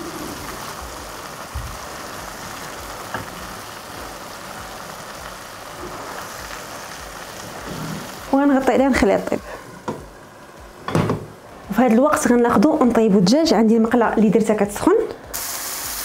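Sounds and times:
meatballs sizzling in a frying pan: 0:00.0 - 0:09.5, 0:15.3 - 0:16.0.

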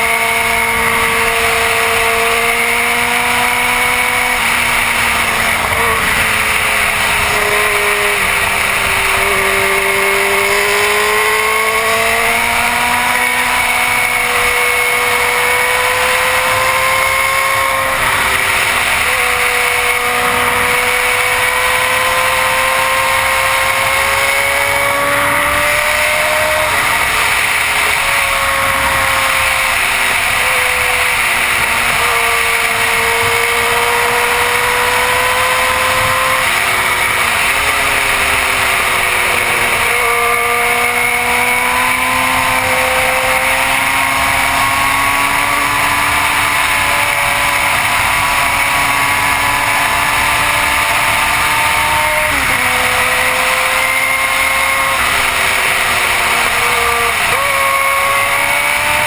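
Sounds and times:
motorcycle engine running: 0:00.0 - 0:59.0
heavy wind rush: 0:04.4 - 0:09.8.

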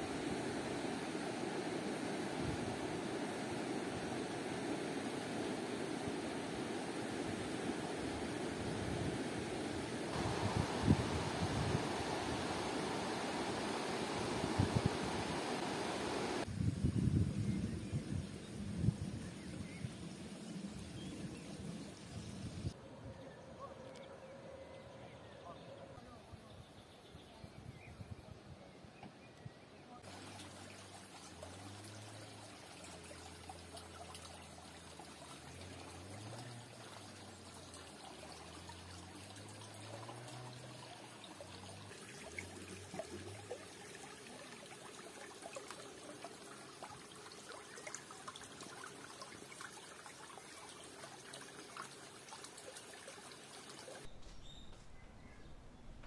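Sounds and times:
water trickling in a ditch: 0:00.0 - 0:16.5, 0:30.0 - 0:54.2.

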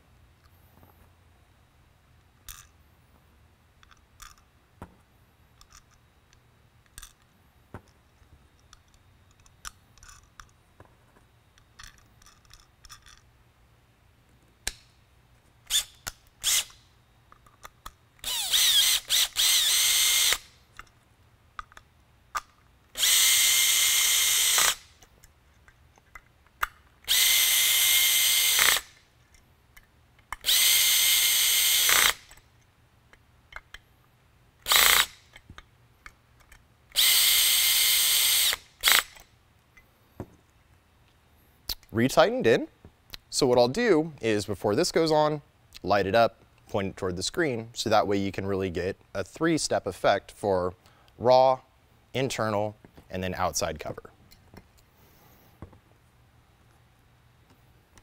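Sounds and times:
power drill driving screws: 0:15.7 - 0:16.8, 0:18.2 - 0:20.5, 0:23.0 - 0:24.9, 0:27.1 - 0:29.0, 0:30.4 - 0:32.4, 0:34.6 - 0:35.2, 0:37.0 - 0:39.2.

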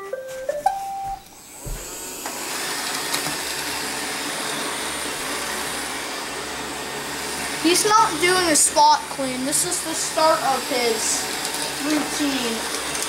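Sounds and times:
robot vacuum motors running: 0:01.3 - 0:13.0.

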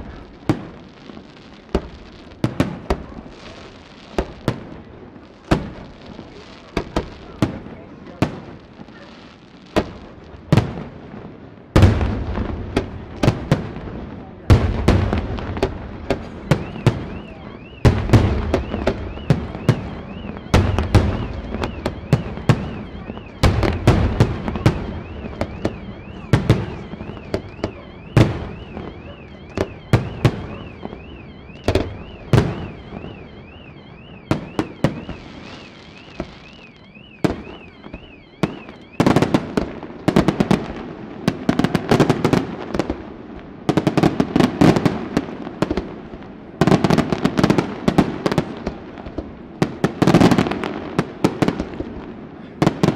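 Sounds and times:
firework crackle: 0:00.0 - 0:52.9.

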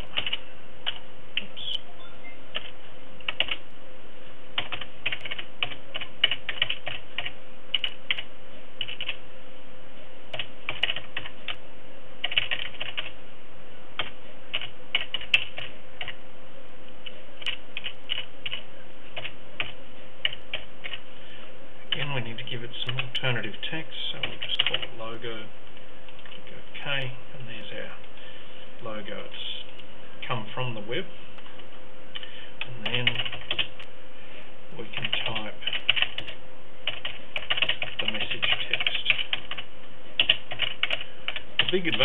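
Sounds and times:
computer keyboard typing: 0:00.0 - 0:01.5, 0:02.5 - 0:03.6, 0:04.6 - 0:09.2, 0:10.3 - 0:11.6, 0:12.2 - 0:13.2, 0:14.0 - 0:16.2, 0:17.4 - 0:18.6, 0:19.2 - 0:21.0, 0:24.2 - 0:24.9, 0:32.8 - 0:33.7, 0:35.0 - 0:42.0
faint steady hum: 0:00.0 - 0:42.0.

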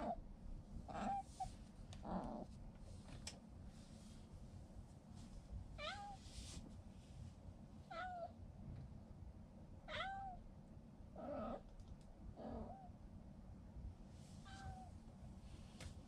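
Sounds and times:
cat meowing: 0:05.8 - 0:06.2, 0:07.9 - 0:08.3, 0:09.9 - 0:10.4, 0:14.4 - 0:14.9.

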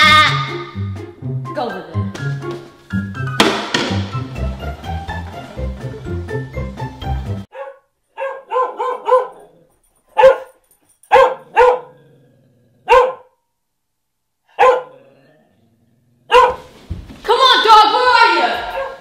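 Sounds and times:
music: 0:00.0 - 0:07.5
dog barking: 0:07.5 - 0:12.0, 0:12.8 - 0:13.4, 0:14.5 - 0:15.0, 0:16.3 - 0:16.7, 0:18.6 - 0:19.0.

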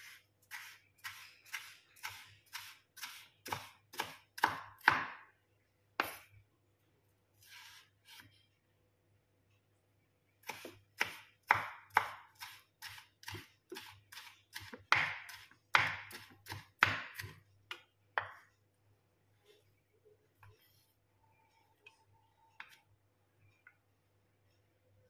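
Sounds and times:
knife chopping on wooden board: 0:00.5 - 0:05.2, 0:10.4 - 0:18.4.

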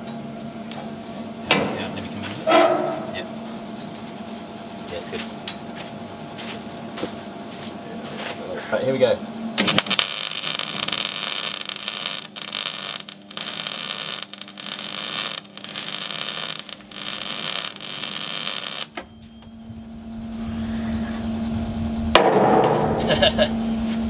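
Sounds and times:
steady hum: 0:00.0 - 0:24.0
welding arc crackling: 0:09.6 - 0:19.0.

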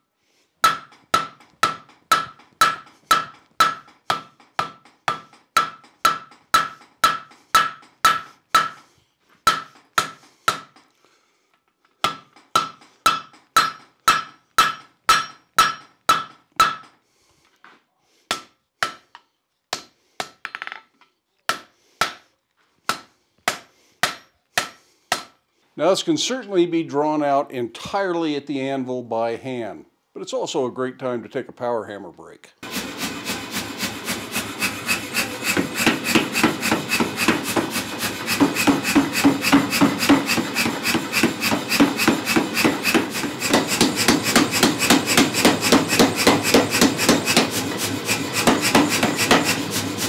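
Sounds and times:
hammer blows ringing on anvil: 0:00.6 - 0:08.8, 0:09.5 - 0:10.8, 0:12.0 - 0:16.9, 0:38.3 - 0:47.6.

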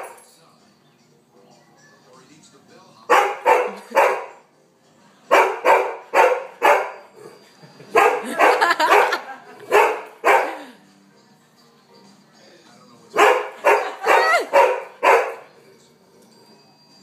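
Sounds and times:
dog barking: 0:03.1 - 0:04.4, 0:05.3 - 0:07.1, 0:07.9 - 0:10.7, 0:13.2 - 0:15.5.

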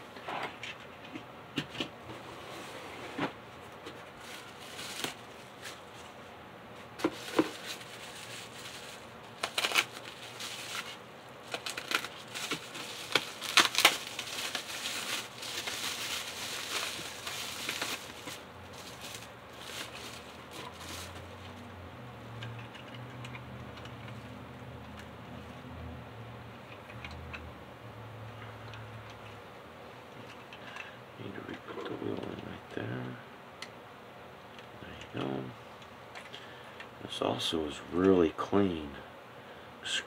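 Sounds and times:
bubble wrap crinkling: 0:03.9 - 0:06.2, 0:07.0 - 0:21.7.

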